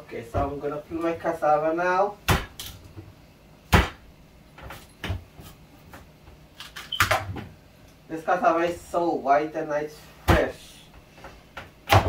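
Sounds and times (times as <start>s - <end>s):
knife chopping on wooden board: 3.7s - 4.0s.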